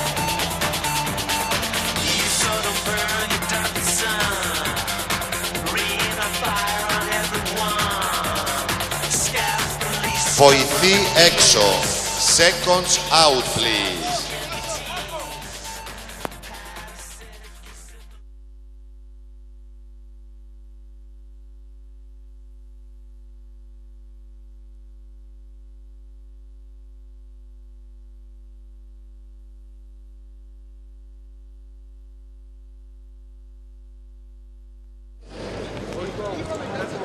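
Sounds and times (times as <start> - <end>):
music and voices: 0.0 - 18.2.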